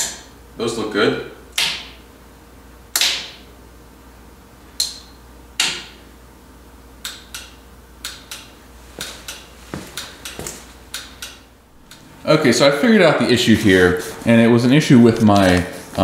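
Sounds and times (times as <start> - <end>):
toggle switches flipping: 4.8 - 6.0, 7.0 - 12.0
turn signal relay clicking: 7.0 - 12.0.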